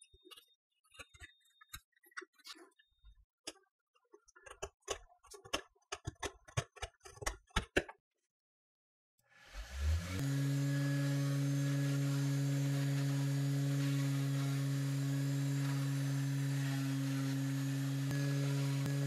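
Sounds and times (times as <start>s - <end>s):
rotary tool humming: 9.5s - 19.0s.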